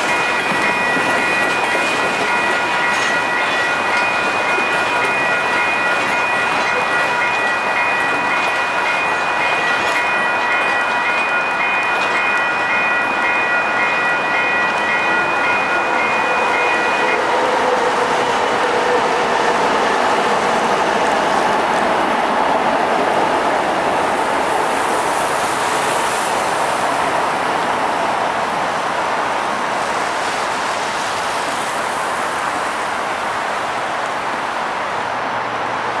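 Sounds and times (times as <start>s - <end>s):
train wheels rumbling on track: 0.0s - 36.0s
tyre hiss on wet road: 24.6s - 27.4s.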